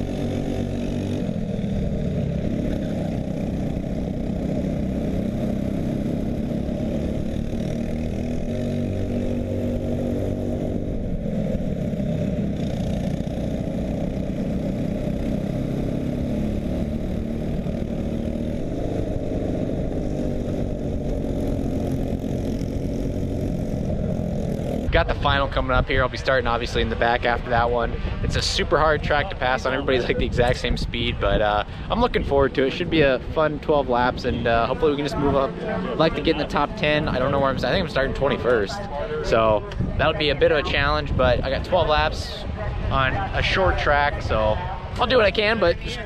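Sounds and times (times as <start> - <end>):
go-kart engines running: 0.0 - 46.0.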